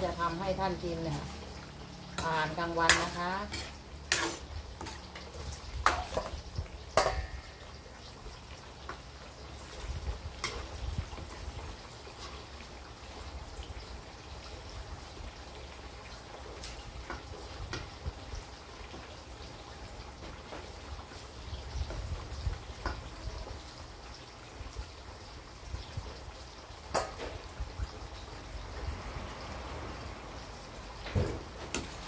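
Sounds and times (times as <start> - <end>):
meat sizzling in a wok: 0.0 - 32.0
metal ladle knocking wok: 2.1 - 5.2, 5.8 - 7.8.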